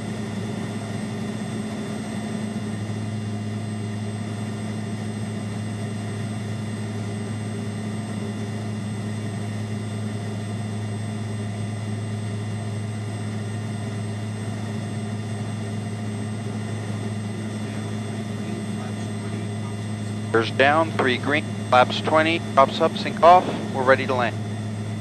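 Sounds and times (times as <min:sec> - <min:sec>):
turboprop engines droning: 0:00.0 - 0:25.0.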